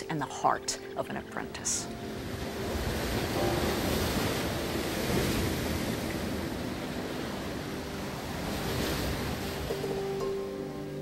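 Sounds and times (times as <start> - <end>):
waves crashing on rocks: 1.9 - 10.3.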